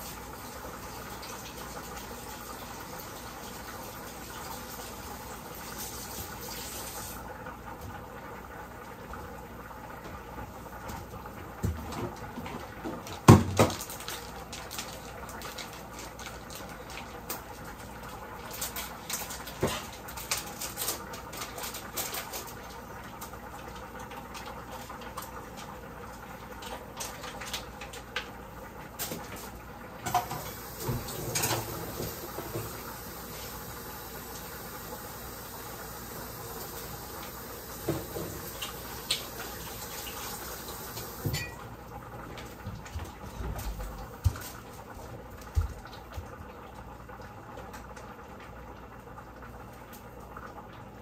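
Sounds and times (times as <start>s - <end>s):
utensils and dishes clinking: 30.1s - 32.7s, 41.2s - 41.7s.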